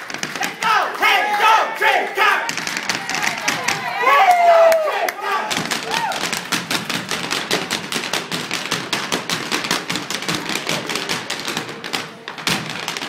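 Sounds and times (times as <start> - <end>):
hard shoes tapping wooden floor: 0.0 - 0.8, 2.3 - 4.0, 5.5 - 13.0.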